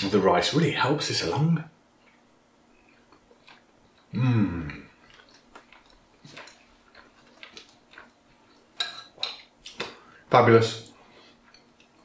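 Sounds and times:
quiet chewing: 2.0s - 10.2s, 10.9s - 12.0s
man humming: 4.1s - 4.9s.

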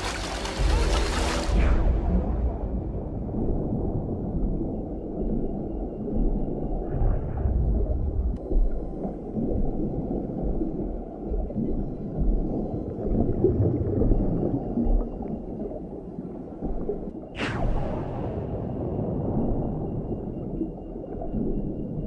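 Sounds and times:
underwater rumble of moving water: 0.0s - 22.0s.

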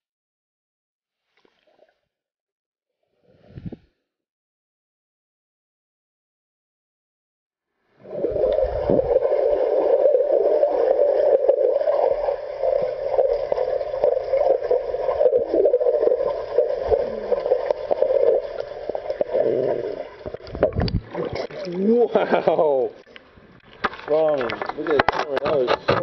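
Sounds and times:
pool water splashing: 8.0s - 24.9s.

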